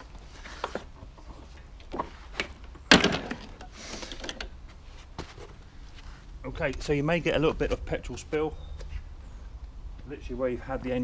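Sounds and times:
lawn mower thumping down: 1.9s - 4.6s.

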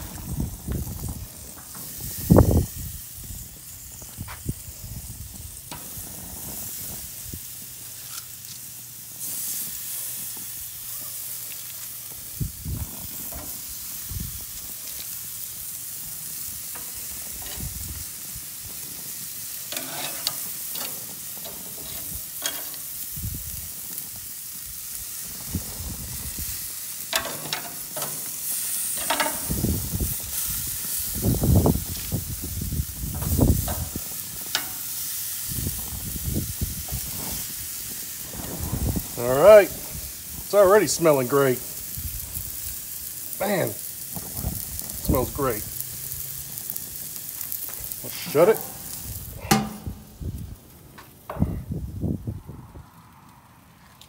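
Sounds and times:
pork chops sizzling on a grill: 0.0s - 54.0s
tongs clicking against grate: 49.4s - 50.0s.

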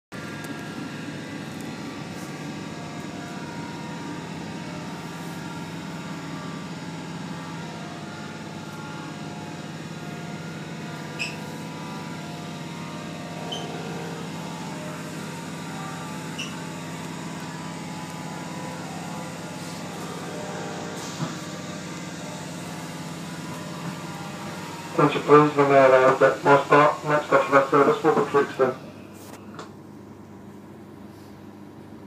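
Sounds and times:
train running noise from inside: 0.2s - 29.8s
brief high squeaks: 11.2s - 11.4s, 13.5s - 13.8s, 16.4s - 16.6s.

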